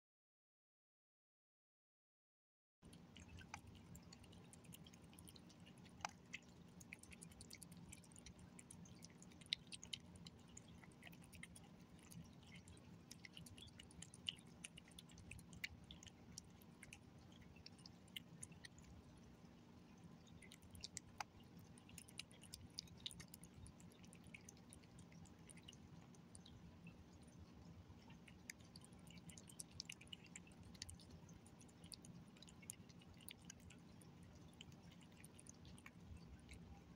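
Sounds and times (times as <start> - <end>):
cat chewing and licking: 2.8 - 36.9.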